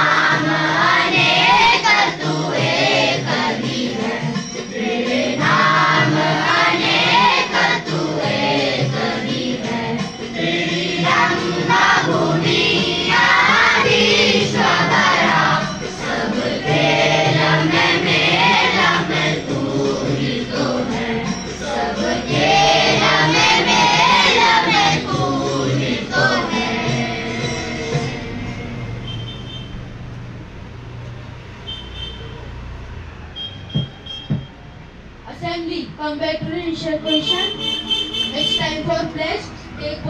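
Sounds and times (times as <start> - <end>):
choir singing: 0.0 - 29.0
held accompaniment: 0.0 - 30.0.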